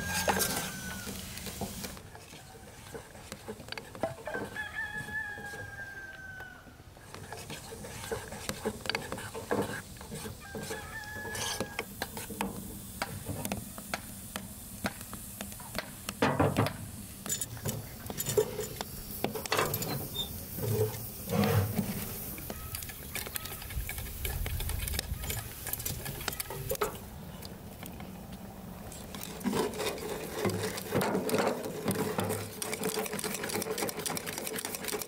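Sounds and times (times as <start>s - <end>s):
chickens clucking: 20.3s - 27.0s.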